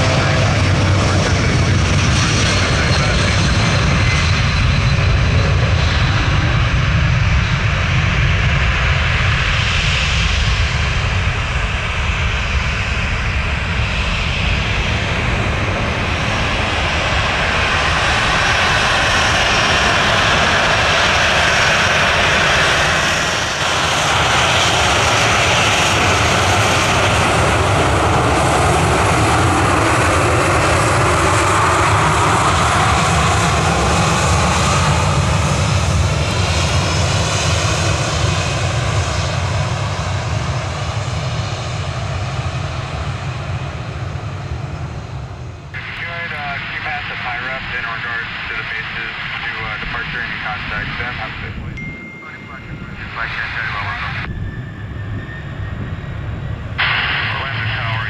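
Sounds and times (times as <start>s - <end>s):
jet engines running: 0.0s - 58.0s.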